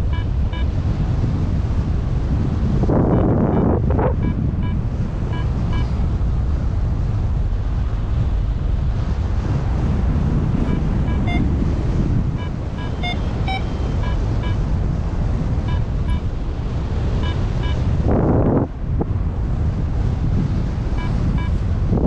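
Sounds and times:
variometer electronic beeps: 0.0s - 0.8s, 3.0s - 6.0s, 10.6s - 11.6s, 12.2s - 14.6s, 15.6s - 16.3s, 17.1s - 17.9s, 20.9s - 21.7s
wind rushing over microphone: 0.0s - 22.0s.

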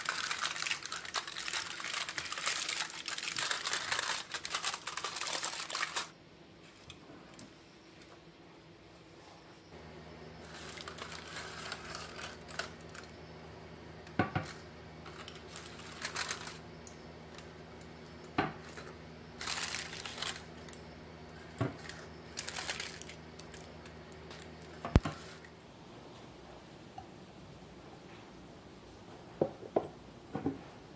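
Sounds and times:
aluminium foil crinkling: 0.0s - 6.1s, 10.4s - 13.1s, 14.4s - 25.5s
low steady hum: 0.0s - 30.9s.

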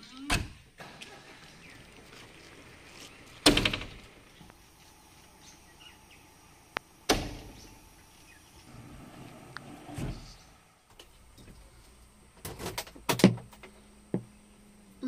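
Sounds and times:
faint birdsong: 1.1s - 10.9s.

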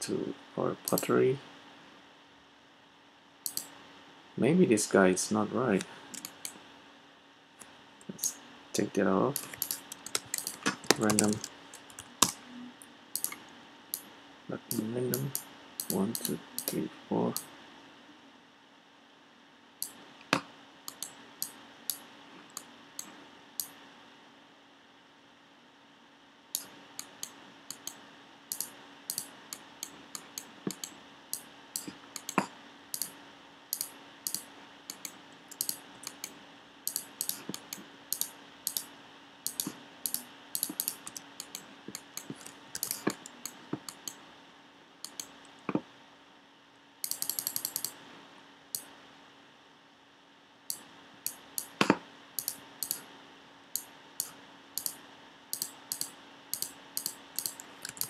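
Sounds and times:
faint steady hum: 0.0s - 58.0s
mouse and keyboard clicking: 0.9s - 1.1s, 3.5s - 3.7s, 5.8s - 6.6s, 9.3s - 12.4s, 13.2s - 13.4s, 14.7s - 17.5s, 26.6s - 38.9s, 39.5s - 44.2s, 45.0s - 45.4s, 47.0s - 48.0s, 50.7s - 53.0s, 53.8s - 58.0s
mouse scroll wheel ticking: 3.5s - 3.7s, 6.1s - 6.6s, 9.3s - 12.4s, 13.2s - 13.4s, 14.7s - 17.4s, 26.6s - 32.4s, 33.0s - 33.2s, 33.8s - 36.3s, 36.9s - 38.9s, 39.5s - 44.2s, 45.0s - 45.3s, 47.0s - 48.0s, 52.4s - 53.0s, 53.8s - 58.0s.

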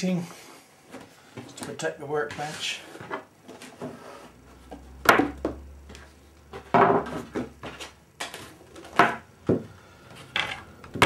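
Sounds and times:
faint low hum: 0.0s - 11.0s
tools knocking on workbench: 6.6s - 7.8s.

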